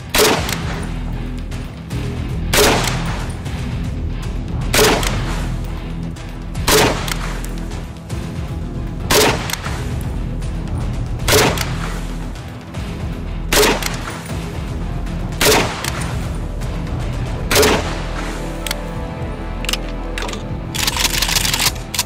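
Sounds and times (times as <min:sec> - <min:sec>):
rifle shots: 0:00.0 - 0:01.0, 0:02.5 - 0:03.3, 0:04.7 - 0:05.5, 0:06.6 - 0:07.6, 0:09.0 - 0:10.0, 0:11.2 - 0:12.1, 0:13.5 - 0:14.3, 0:15.4 - 0:16.2, 0:17.5 - 0:18.4
background music: 0:00.0 - 0:22.0.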